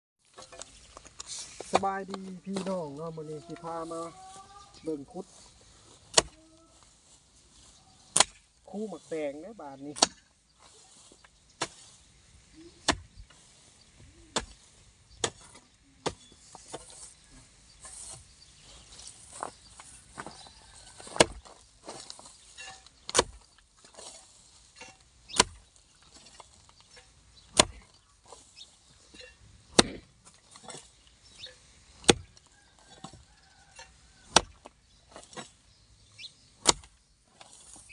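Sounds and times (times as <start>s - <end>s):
dry grass and earth rustling: 0.2s - 37.9s
hoe chopping into soil: 6.0s - 6.4s, 8.1s - 8.5s, 9.9s - 12.0s, 12.8s - 13.5s, 14.3s - 17.1s, 19.0s - 35.6s, 36.6s - 37.9s.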